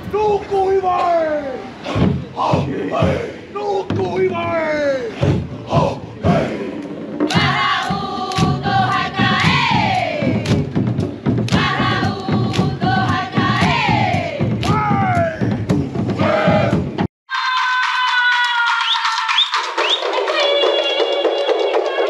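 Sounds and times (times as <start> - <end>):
group chanting and shouting: 0.0 - 10.8, 11.4 - 22.0
dense low beat: 1.9 - 17.1
music: 5.2 - 22.0.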